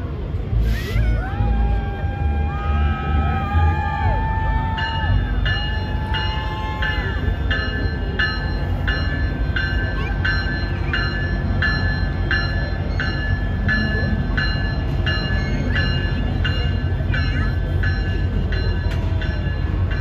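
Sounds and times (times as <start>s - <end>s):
train rolling rumble: 0.0s - 20.0s
locomotive bell ringing: 2.6s - 20.0s.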